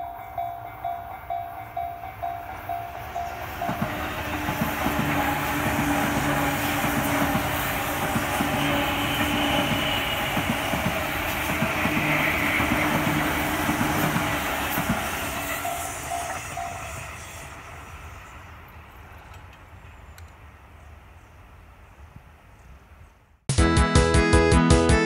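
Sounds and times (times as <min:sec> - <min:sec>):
level crossing warning bell: 0:00.0 - 0:07.8, 0:15.5 - 0:17.0
train wheels clattering over rail joints: 0:01.2 - 0:16.8.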